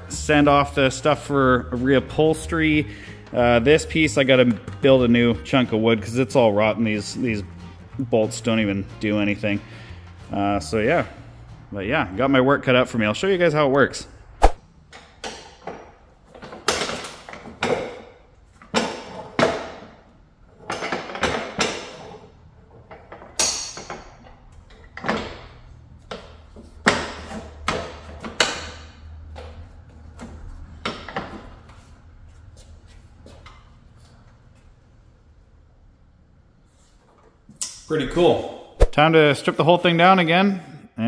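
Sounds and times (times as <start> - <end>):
barber chair clunks and rattles: 14.9 - 32.6.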